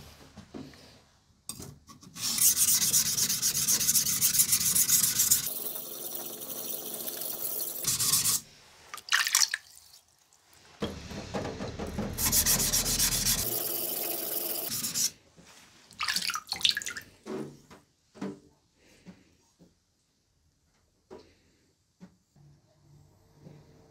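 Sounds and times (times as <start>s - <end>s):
short knife scrapes: 2.0s - 5.5s
knife grinding on whetstone: 2.2s - 5.8s.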